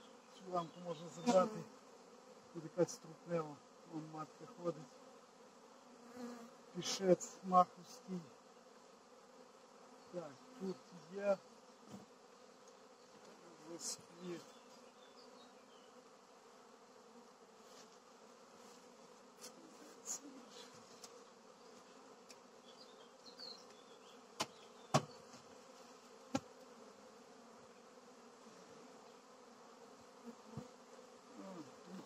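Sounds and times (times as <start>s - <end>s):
bees buzzing: 0.0s - 32.0s
knocks on wooden hive frames: 11.8s - 12.2s, 24.3s - 25.5s, 26.3s - 26.6s.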